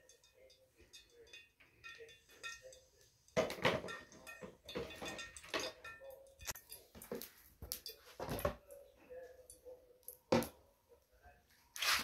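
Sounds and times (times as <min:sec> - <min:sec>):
metal pots and dishes clattering: 0:00.0 - 0:08.7.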